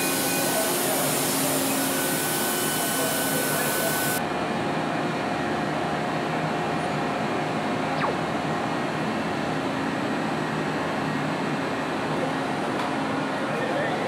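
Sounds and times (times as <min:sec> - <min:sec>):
machine hum and air noise: 0:00.0 - 0:14.0
faint falling whistle: 0:08.0 - 0:08.3.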